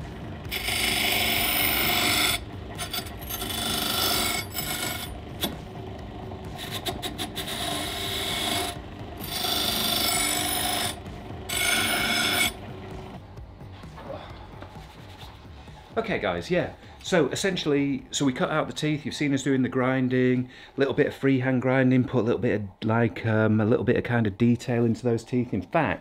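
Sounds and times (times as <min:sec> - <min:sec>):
bench grinder running: 0:00.0 - 0:13.2
metal grinding against wheel: 0:00.4 - 0:13.1.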